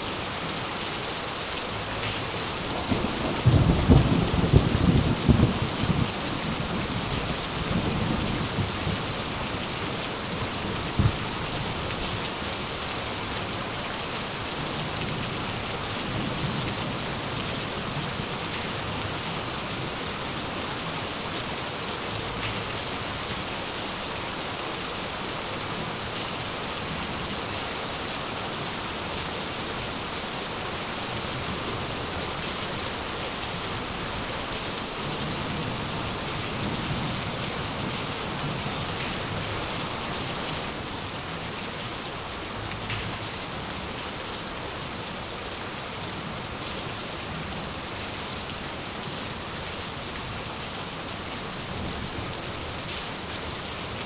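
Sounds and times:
rain falling: 0.0 - 54.0
thunder rumbling: 2.7 - 7.1.

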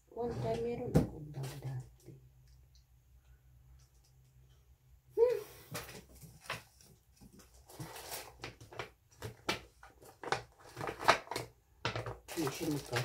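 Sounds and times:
packaging and bags rustling: 5.6 - 11.5, 12.2 - 13.0.

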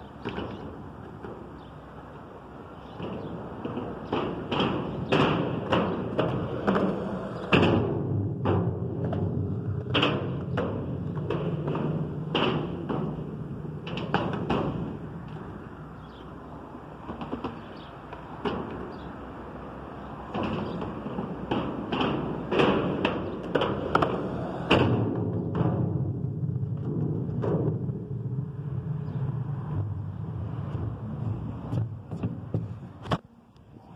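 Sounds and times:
skateboard wheels rumbling: 0.1 - 15.9, 20.2 - 33.0
skateboard clacks and thuds: 2.9 - 15.5, 17.0 - 19.2, 20.2 - 28.1, 31.5 - 33.2.

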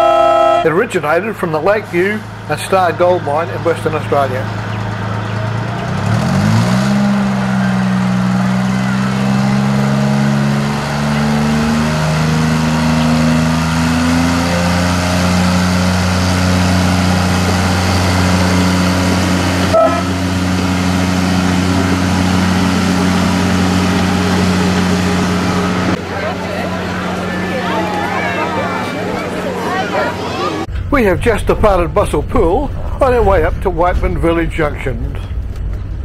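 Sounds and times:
brief high tone: 0.0 - 0.7, 19.7 - 20.3
diesel locomotive engine revving: 0.0 - 36.0.

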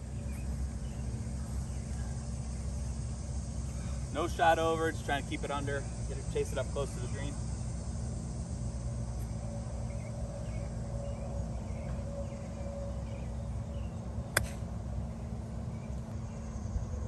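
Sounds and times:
outdoor background noise: 0.0 - 17.0
golf club hitting ball: 14.4 - 14.7.

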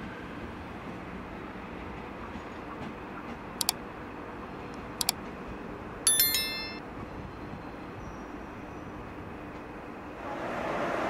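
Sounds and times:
bright bell ding: 6.1 - 6.8.

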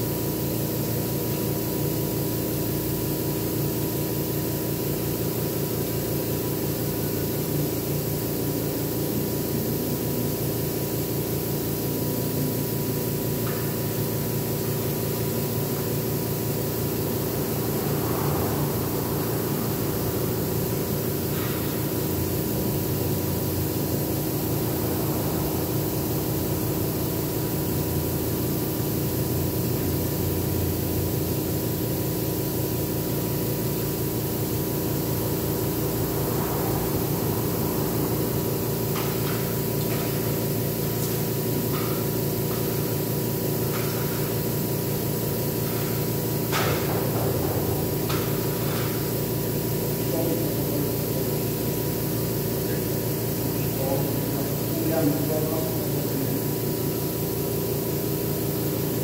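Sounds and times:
air compressor running: 0.0 - 59.0
airbrush spraying hiss: 2.4 - 59.0.

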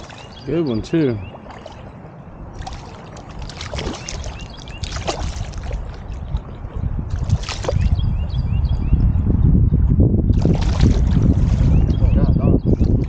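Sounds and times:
river water splashing: 0.0 - 8.0, 10.4 - 11.8
low rumble: 5.5 - 13.0.

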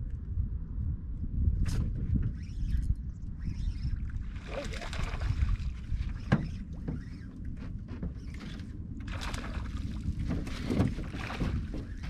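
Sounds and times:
low wind rumble: 0.0 - 12.0
water lapping around boat: 3.4 - 12.0
light knocks aboard boat: 6.2 - 8.7, 10.1 - 12.0.

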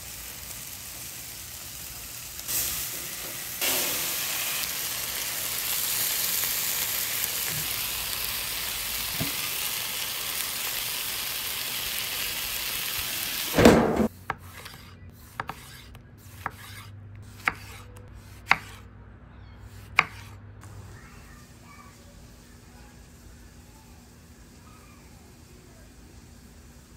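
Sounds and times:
chicken sizzling on griddle: 0.0 - 14.1, 20.6 - 26.9
loud thump: 13.6 - 14.1.

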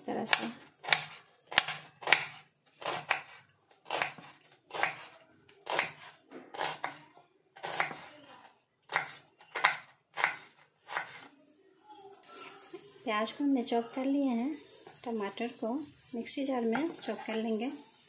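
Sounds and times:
knife slicing onion on cutting board: 0.2 - 11.3.

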